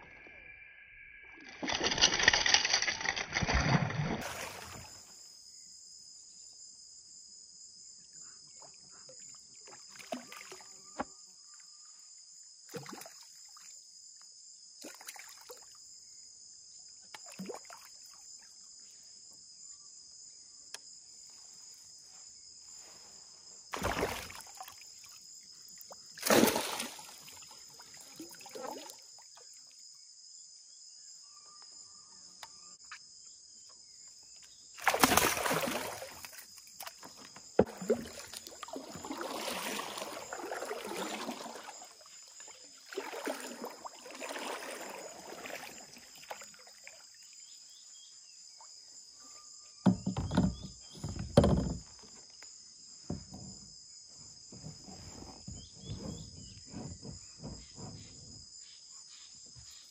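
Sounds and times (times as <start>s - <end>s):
insect chorus drone: 0.0s - 59.9s
water splashing: 1.5s - 5.0s, 23.7s - 25.2s, 25.8s - 29.1s, 34.8s - 47.2s.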